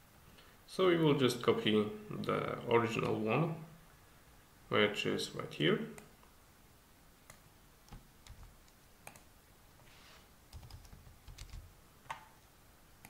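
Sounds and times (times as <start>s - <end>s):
computer keyboard keystrokes: 7.9s - 9.3s, 10.5s - 12.2s.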